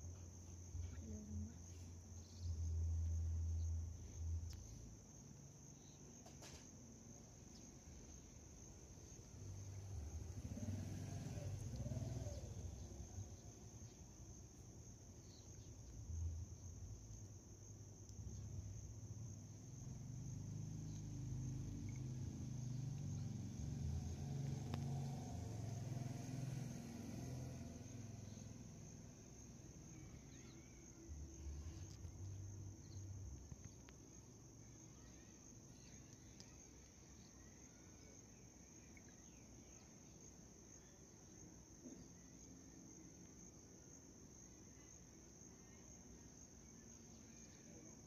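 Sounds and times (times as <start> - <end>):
crickets trilling: 0.0 - 48.0.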